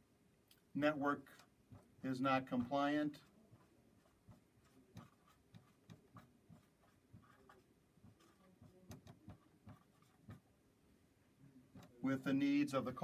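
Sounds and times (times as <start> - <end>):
marker writing on whiteboard: 0.9 - 10.6, 11.7 - 13.0.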